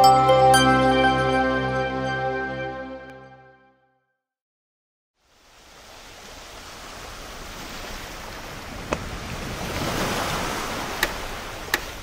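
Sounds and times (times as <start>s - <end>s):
sea surf on sandy beach: 5.2s - 12.0s.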